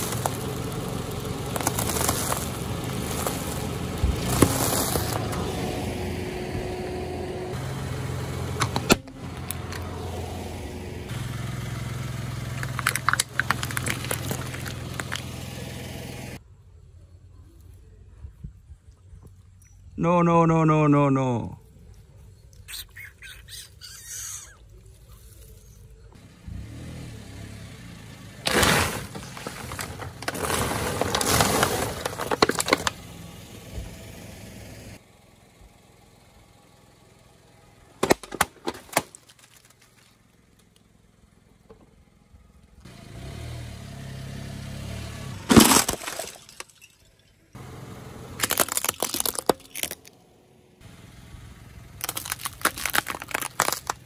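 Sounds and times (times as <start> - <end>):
glass and plastic crunching: 0.0 - 5.2, 12.6 - 15.3, 28.5 - 33.0, 38.0 - 40.1, 45.5 - 47.5, 48.4 - 50.2, 52.0 - 54.0
car rumble: 0.0 - 20.0, 21.6 - 54.0.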